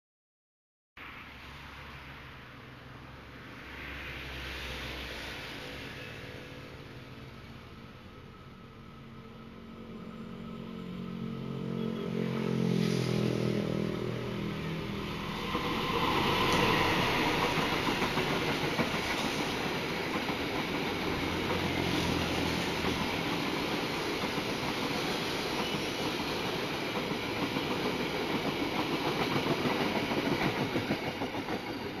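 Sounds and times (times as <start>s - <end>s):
diesel locomotive engine: 2.4s - 32.0s
train carriages rushing past: 3.6s - 32.0s
wheels clattering on rails: 14.9s - 32.0s.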